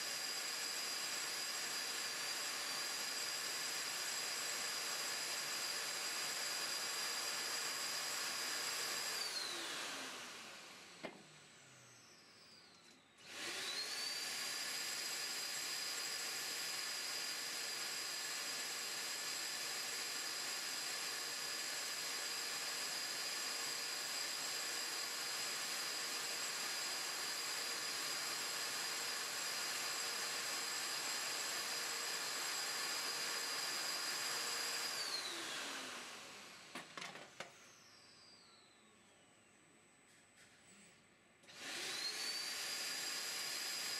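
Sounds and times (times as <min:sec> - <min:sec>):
vacuum cleaner whining: 0:05.2 - 0:18.2, 0:22.4 - 0:39.4, 0:40.6 - 0:43.9.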